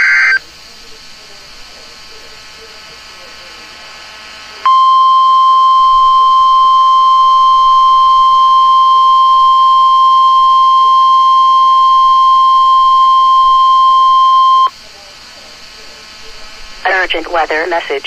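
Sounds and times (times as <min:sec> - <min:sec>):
warning alarm beep: 0:00.0 - 0:00.4, 0:04.7 - 0:14.7.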